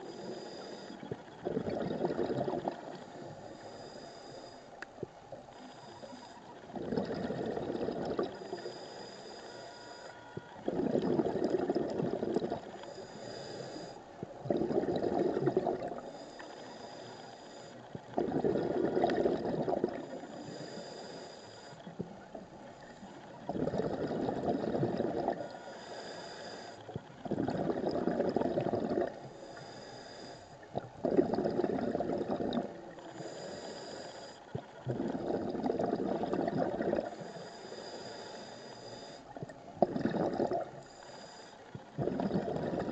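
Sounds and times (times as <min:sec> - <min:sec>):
regulator inhalation hiss: 0:00.0 - 0:01.1, 0:03.2 - 0:04.7, 0:08.4 - 0:10.1, 0:12.8 - 0:14.0, 0:16.0 - 0:17.8, 0:20.1 - 0:21.9, 0:25.4 - 0:26.9, 0:29.4 - 0:30.6, 0:33.1 - 0:34.5, 0:37.1 - 0:39.4, 0:40.7 - 0:41.8
exhaled bubbles gurgling: 0:00.0 - 0:03.9, 0:05.8 - 0:08.8, 0:10.4 - 0:29.8, 0:30.6 - 0:37.3, 0:39.0 - 0:41.2, 0:41.8 - 0:42.9.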